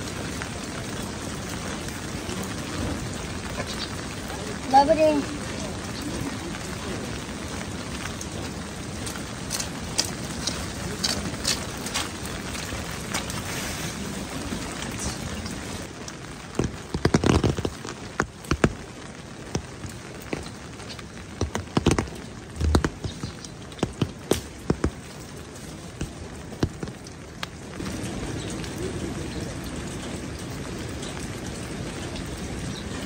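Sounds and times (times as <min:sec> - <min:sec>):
steady rain: 0:00.0 - 0:33.0
sharp taps and knocks: 0:16.5 - 0:18.9, 0:19.5 - 0:25.2, 0:26.0 - 0:27.5.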